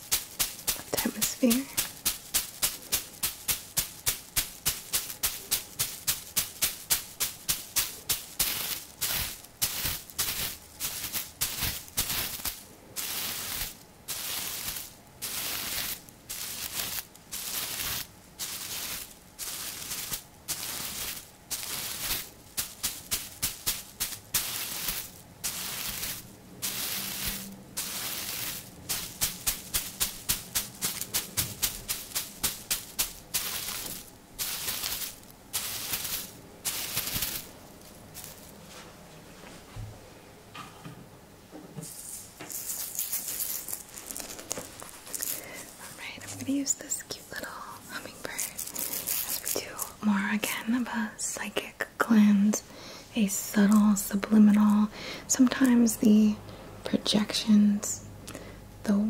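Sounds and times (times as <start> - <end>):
dried herbs tapped and swished: 0.0 - 39.9, 41.8 - 51.5, 53.2 - 56.3.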